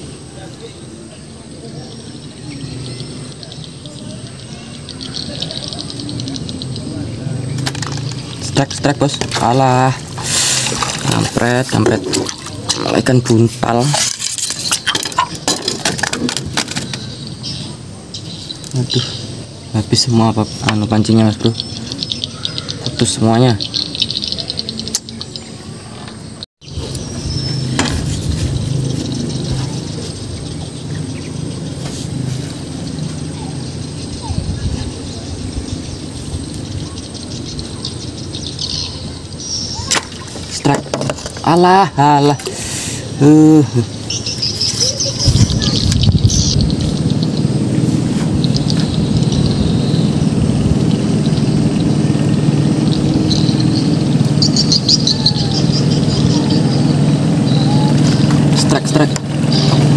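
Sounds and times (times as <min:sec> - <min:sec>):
bird chirps: 0:00.0 - 0:15.5, 0:16.1 - 0:59.9
engine humming: 0:00.0 - 0:59.9
low motor rumble: 0:26.6 - 0:40.6, 0:43.1 - 0:59.9.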